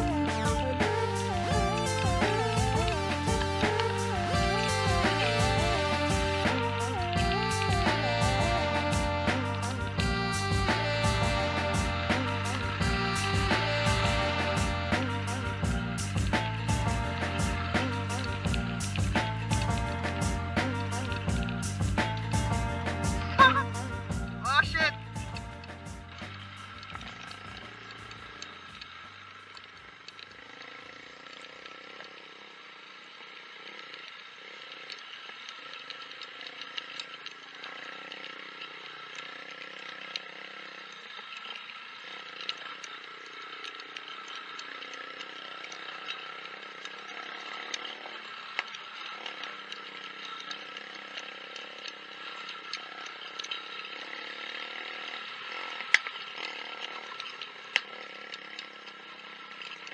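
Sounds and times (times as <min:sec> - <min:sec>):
motorcycle engine running: 0:00.0 - 0:32.6
motorcycle rattling over rough track: 0:00.0 - 0:32.7.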